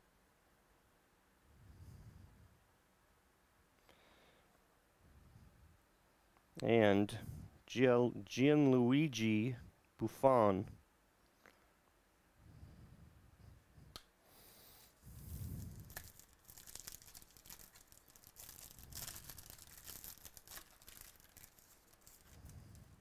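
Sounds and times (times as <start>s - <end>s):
foil wrapper tearing and crinkling: 15.7s - 22.4s.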